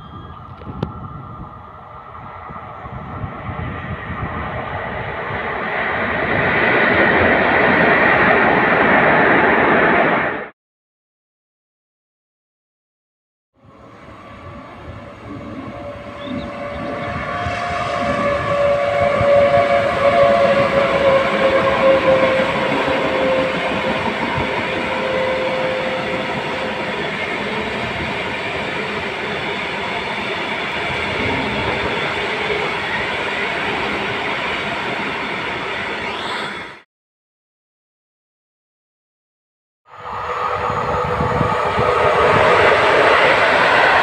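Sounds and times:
electric locomotive whine: 0:00.0 - 0:10.5, 0:13.6 - 0:36.8, 0:39.9 - 0:44.0.

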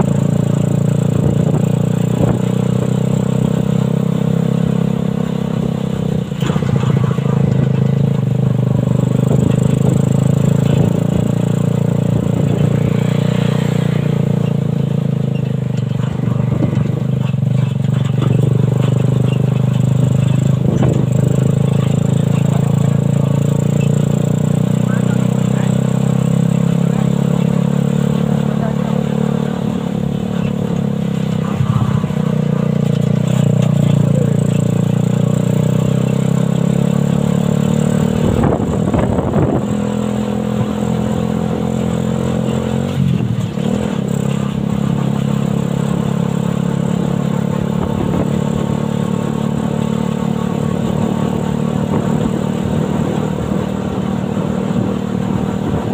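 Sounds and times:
motorcycle engine running: 0:00.0 - 0:55.9.

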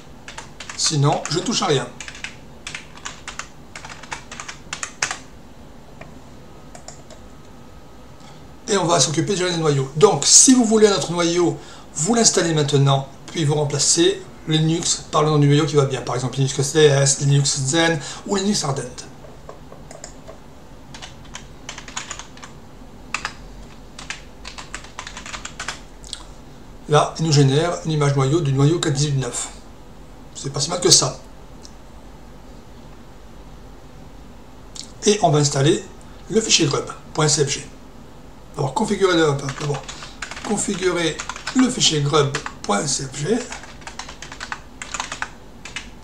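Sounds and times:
computer keyboard typing: 0:00.0 - 0:05.3, 0:06.7 - 0:07.2, 0:19.2 - 0:25.8, 0:39.4 - 0:42.8, 0:43.4 - 0:46.0.

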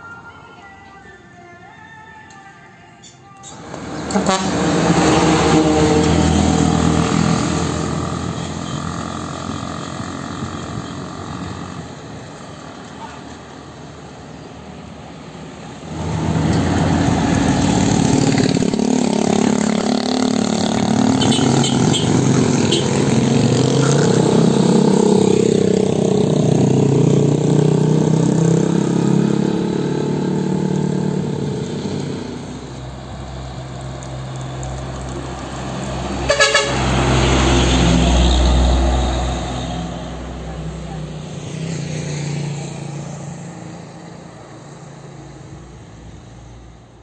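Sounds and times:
truck horns honking: 0:03.4 - 0:09.7, 0:15.8 - 0:25.8, 0:36.0 - 0:39.9
heavy truck engine rumbling: 0:03.4 - 0:41.8
trucks passing: 0:03.4 - 0:47.0.

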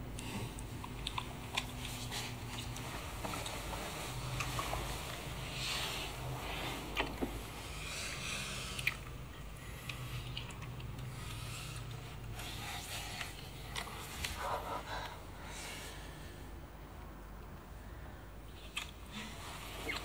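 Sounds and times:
steady low hum: 0:00.0 - 0:20.0
people breathing heavily and gasping: 0:11.0 - 0:16.6.

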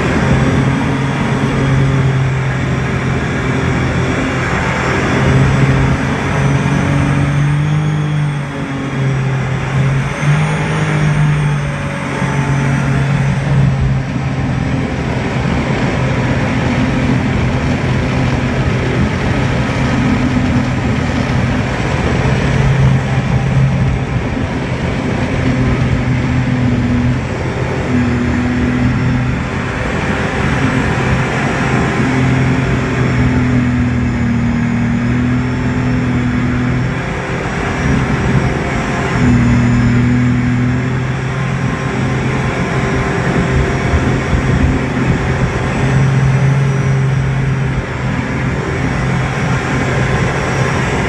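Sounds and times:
boat engine running: 0:00.0 - 0:51.0.

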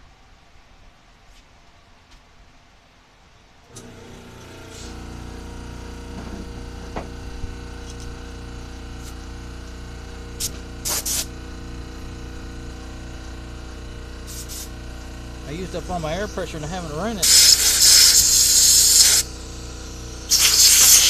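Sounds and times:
air compressor running: 0:03.7 - 0:21.0
air blow gun hissing blasts: 0:10.4 - 0:11.4, 0:14.2 - 0:14.8, 0:15.4 - 0:21.0.

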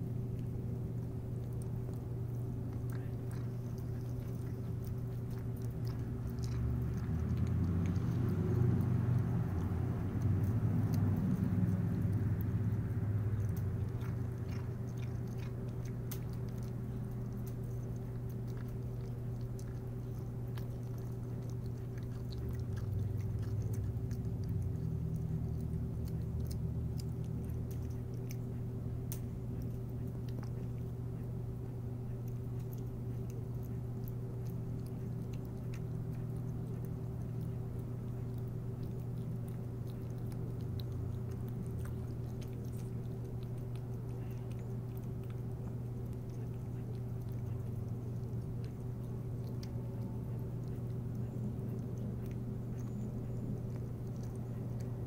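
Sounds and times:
cat chewing wet food: 0:00.0 - 0:55.0
steady low hum: 0:00.0 - 0:55.0.

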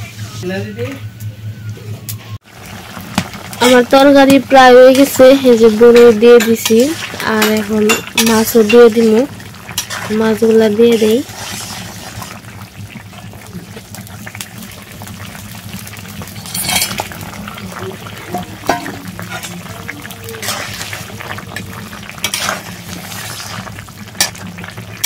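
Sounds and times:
metal spatula scraping pan: 0:22.2 - 0:23.6.

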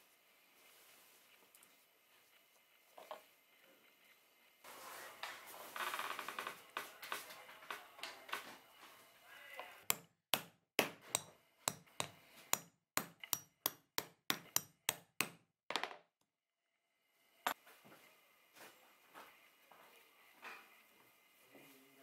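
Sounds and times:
mallet striking chisel: 0:09.8 - 0:15.5.

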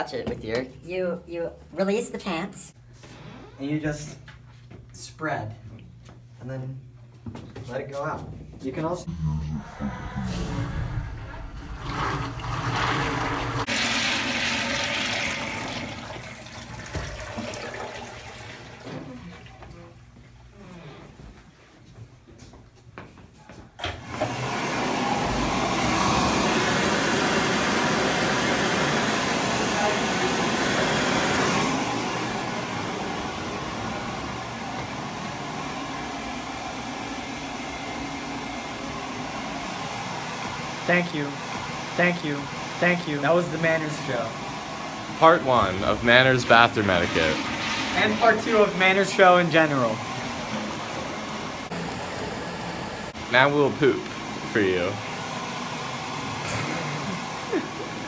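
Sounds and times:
urinal flushing: 0:11.2 - 0:20.0, 0:23.8 - 0:40.8, 0:42.4 - 0:51.8
hand dryer blowing air: 0:11.6 - 0:19.4, 0:23.8 - 0:58.0
water splashing into urinal: 0:11.8 - 0:19.6.

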